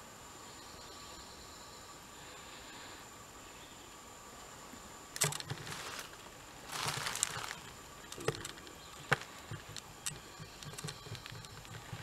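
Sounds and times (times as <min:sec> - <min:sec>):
sharp clicks: 0:05.2 - 0:05.7, 0:06.9 - 0:12.0
camera handling rustle: 0:05.2 - 0:12.0.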